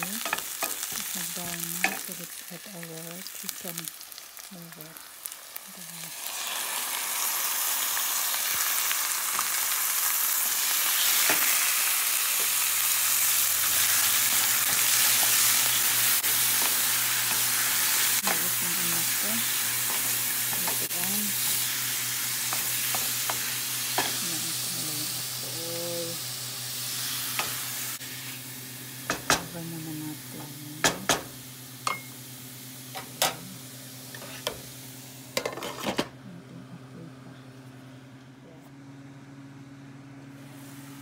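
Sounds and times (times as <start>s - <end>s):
food sizzling in a pan: 0.0s - 35.6s
steady low hum: 36.0s - 41.0s.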